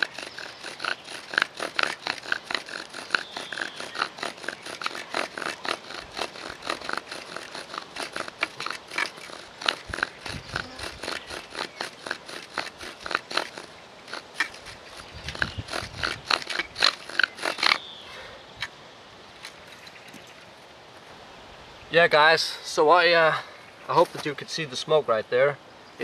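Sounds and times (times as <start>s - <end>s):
bow drill scraping squeaks: 0.0s - 17.8s.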